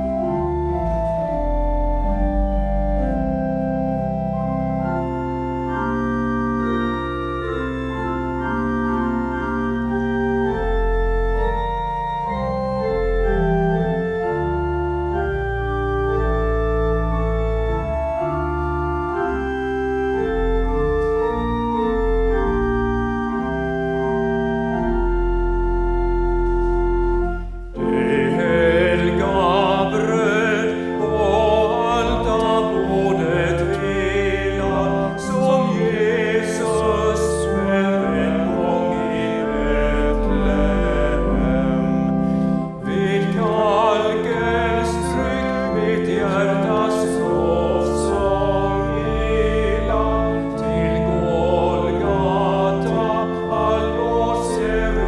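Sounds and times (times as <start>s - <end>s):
pipe organ chords: 0.0s - 55.0s
person singing with vibrato: 27.8s - 42.0s, 42.6s - 55.0s.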